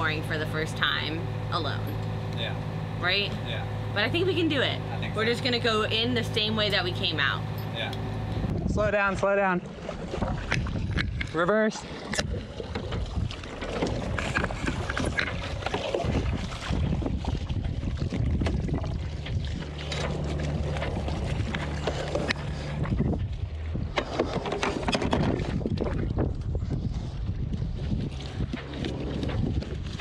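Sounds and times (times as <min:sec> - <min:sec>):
boat engine humming: 0:00.0 - 0:30.0
wind buffeting microphone: 0:03.2 - 0:11.4, 0:12.0 - 0:30.0
knocks and splashes: 0:09.2 - 0:30.0
wet rope hauled aboard: 0:09.6 - 0:30.0.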